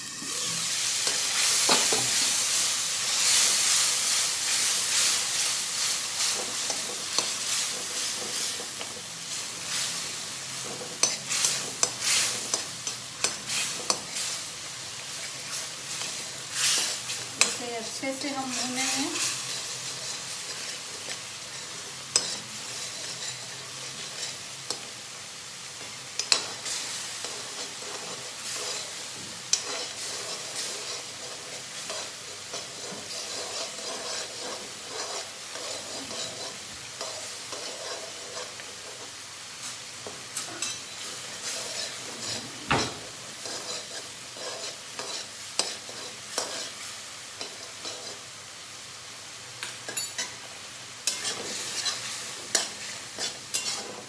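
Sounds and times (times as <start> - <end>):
paste sizzling in oil: 0.0 - 54.0
metal spoon scraping pan: 15.9 - 24.8, 26.2 - 39.1, 40.4 - 46.8, 47.4 - 48.2, 51.0 - 54.0.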